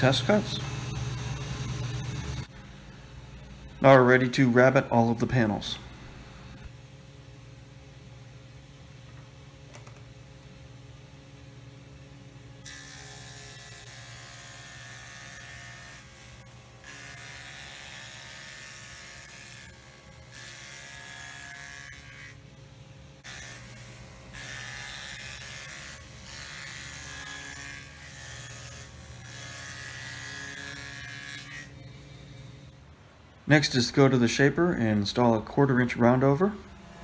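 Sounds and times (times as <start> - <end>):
table saw motor hum: 0.0 - 3.8, 23.2 - 32.8, 36.4 - 37.0
saw cutting wood panels: 12.6 - 22.4, 23.2 - 32.7, 36.4 - 37.0.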